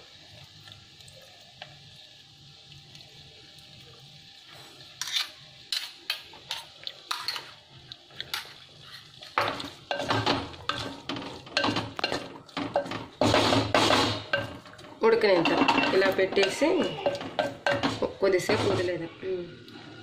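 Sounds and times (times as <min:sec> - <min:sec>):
spoon knocking and scraping pot: 0:08.3 - 0:19.0
wooden spoon stirring in clay pot: 0:08.8 - 0:19.1.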